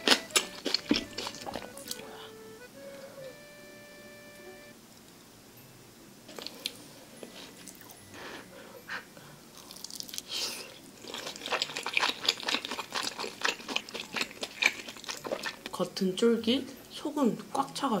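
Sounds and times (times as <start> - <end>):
chewing with wet mouth clicks: 0.0 - 2.1, 9.6 - 10.4, 11.0 - 15.8.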